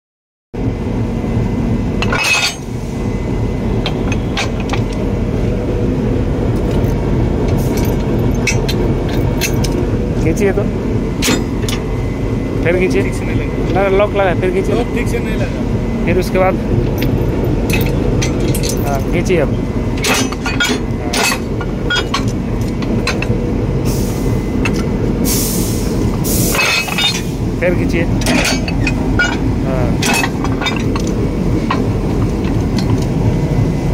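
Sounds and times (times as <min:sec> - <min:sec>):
locomotive engine rumbling: 0:00.6 - 0:33.9
metal coupler parts clinking: 0:02.0 - 0:02.8, 0:03.8 - 0:05.0, 0:06.6 - 0:10.5, 0:11.2 - 0:11.9, 0:16.8 - 0:23.5, 0:26.1 - 0:33.2.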